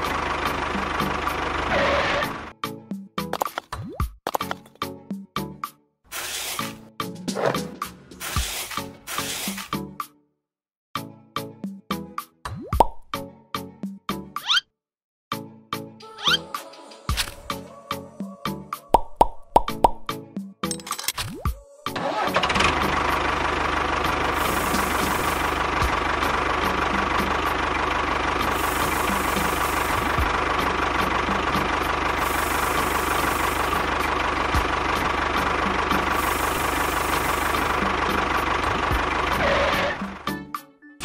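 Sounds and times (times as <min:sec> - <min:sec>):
tractor engine running: 0:00.0 - 0:02.6, 0:21.9 - 0:40.4.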